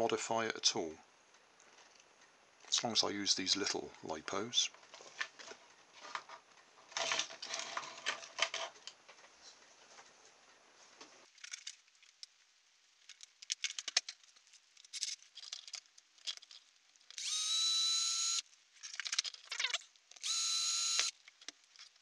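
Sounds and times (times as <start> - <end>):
plastic parts rattling: 4.9 - 9.0, 11.3 - 12.3, 13.0 - 17.4, 18.7 - 20.4, 21.2 - 22.0
small electric drill running: 17.2 - 18.4, 20.2 - 21.1.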